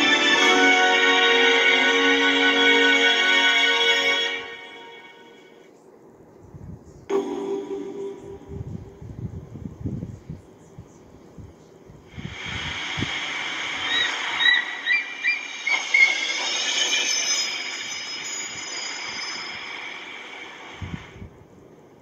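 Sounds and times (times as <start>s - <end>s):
sea surf washing: 12.2s - 16.2s.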